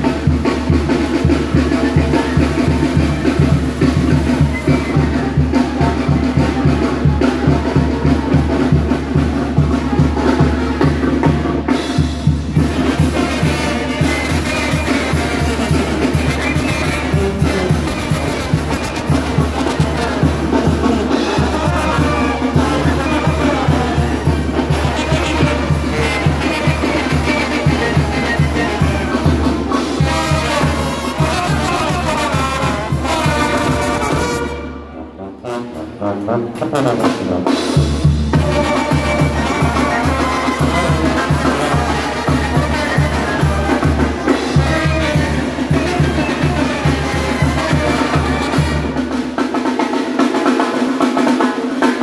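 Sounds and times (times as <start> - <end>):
bass drum and snare beat: 0.0 - 34.6, 37.0 - 52.0
brass band playing dance music: 0.0 - 52.0.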